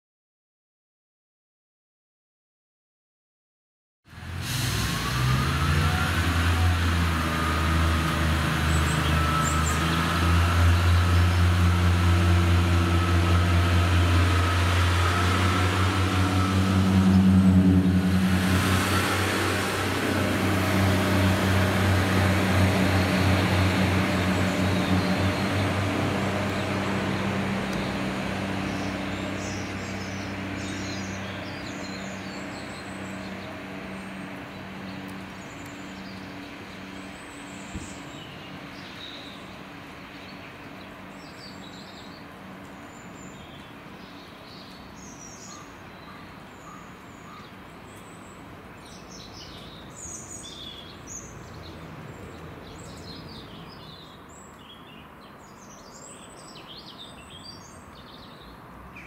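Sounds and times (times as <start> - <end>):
diesel train engine humming: 4.2 - 43.0
small birds chirping: 22.7 - 59.0.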